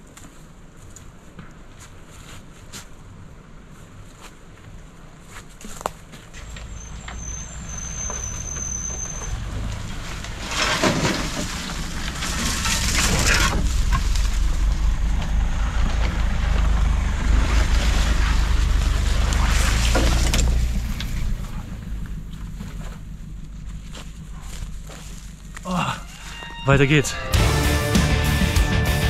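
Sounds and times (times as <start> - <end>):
off-road vehicle engine rumbling: 0.0 - 29.0
rushing rattling burst: 10.2 - 22.6.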